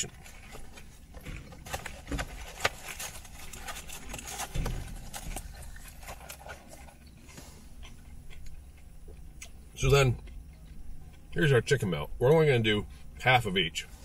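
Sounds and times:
cardboard box crinkling and clicking: 0.0s - 7.1s.

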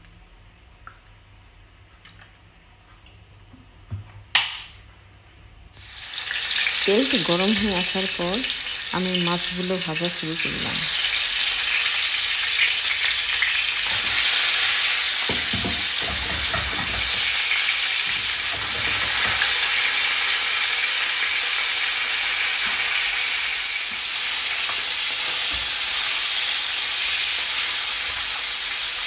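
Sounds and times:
fish sizzling in hot oil: 5.8s - 29.0s.

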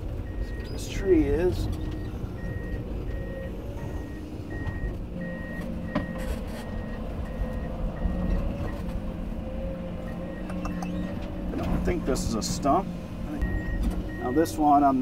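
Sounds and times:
excavator engine and hydraulic hum: 0.0s - 15.0s
beeping alarm: 1.8s - 8.8s, 13.4s - 14.6s.

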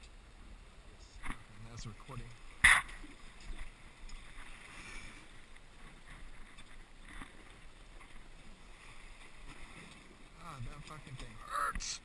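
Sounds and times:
water lapping against hull: 0.0s - 12.0s.

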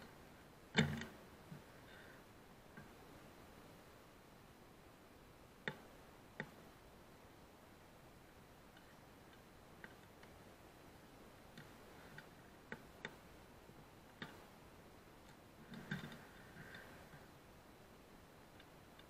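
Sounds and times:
faint clicks and ticks: 5.6s - 6.8s, 8.5s - 19.0s.

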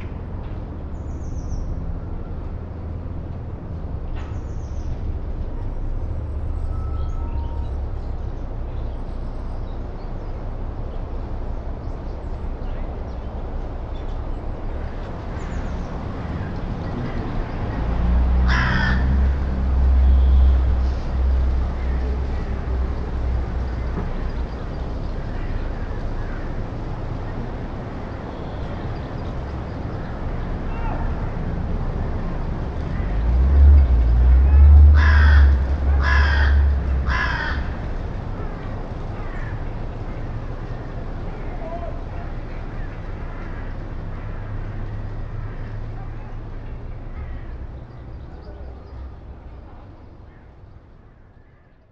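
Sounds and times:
passing vehicle engine hum: 0.0s - 51.2s
crow cawing: 18.4s - 19.1s, 34.9s - 37.8s.

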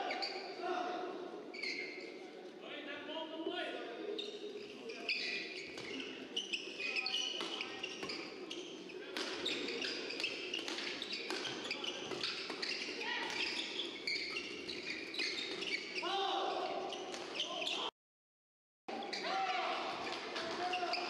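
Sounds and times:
shoes squeaking on court: 0.0s - 0.6s, 1.5s - 2.2s, 4.1s - 17.9s, 18.9s - 21.0s
large hall background: 0.0s - 17.9s, 18.9s - 21.0s
rackets hitting shuttlecock: 9.1s - 14.0s.

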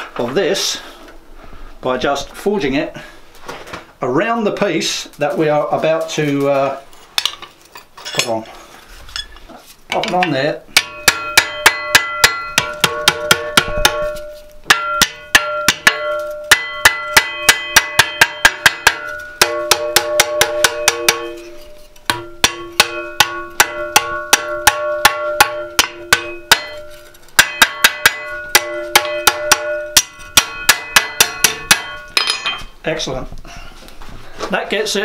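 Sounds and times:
hammer striking steel on anvil: 10.0s - 32.7s
anvil ringing: 10.2s - 32.7s.

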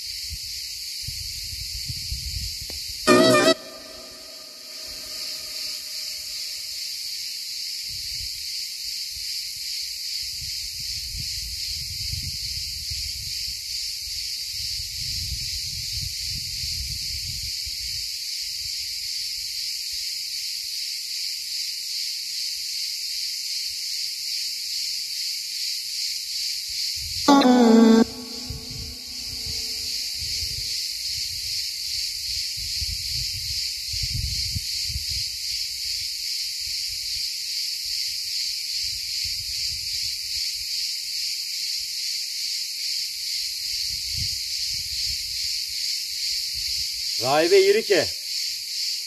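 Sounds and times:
insects buzzing: 3.0s - 7.7s, 27.3s - 31.2s.

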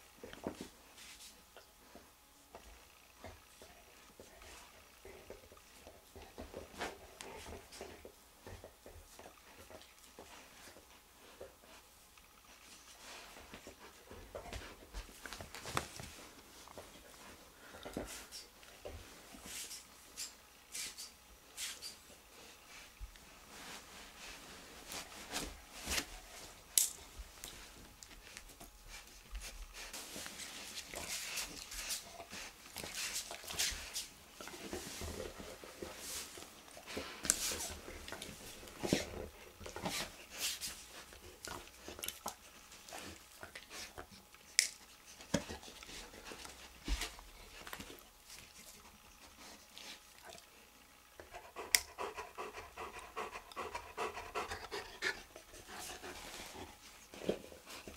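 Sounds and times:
panting breaths: 51.2s - 57.9s.

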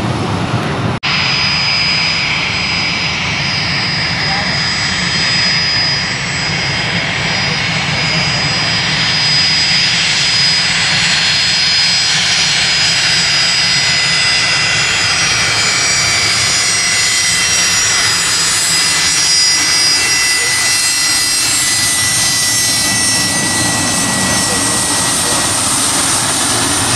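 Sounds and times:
jet engines roaring and whining: 0.0s - 26.9s.

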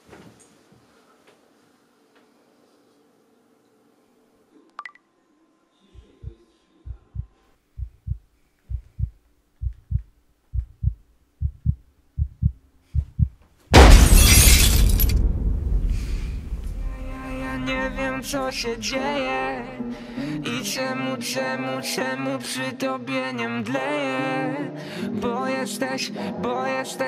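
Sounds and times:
heartbeat thumps: 6.0s - 13.4s
loud shattering crash: 13.8s - 18.5s.

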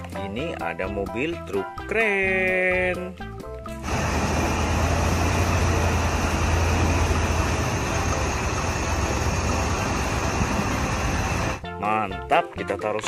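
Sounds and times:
diesel engine drone: 3.8s - 11.6s
wide rushing noise: 3.8s - 11.6s.

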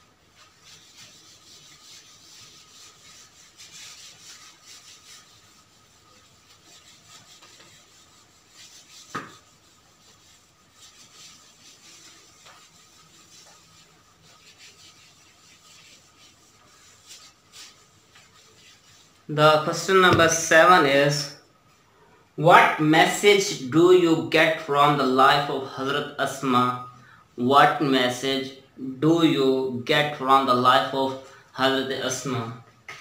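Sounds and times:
rubbing on a whiteboard: 0.0s - 21.8s.

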